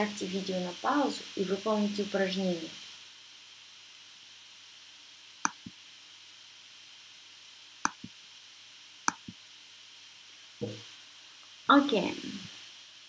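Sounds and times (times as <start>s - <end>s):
faint steady hiss: 0.0s - 13.0s
sharp clicks: 5.4s - 5.8s, 7.8s - 8.1s, 9.1s - 9.4s
softer clicks: 5.4s - 5.8s, 7.8s - 8.1s.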